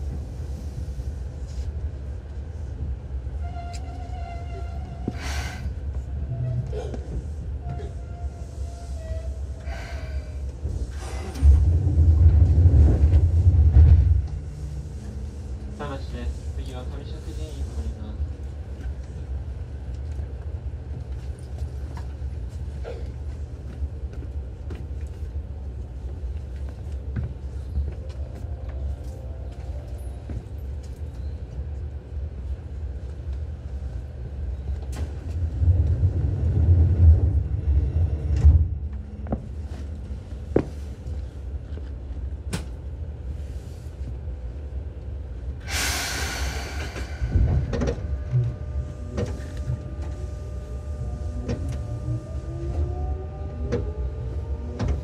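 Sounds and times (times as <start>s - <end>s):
train running gear rumble: 0.0s - 55.0s
loud air hiss: 45.6s - 47.4s.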